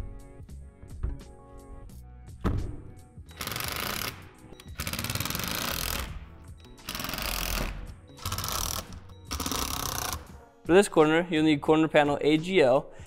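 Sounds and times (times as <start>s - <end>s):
background music: 0.0s - 13.0s
thump: 2.4s - 2.8s
power driver driving screws: 3.3s - 10.3s.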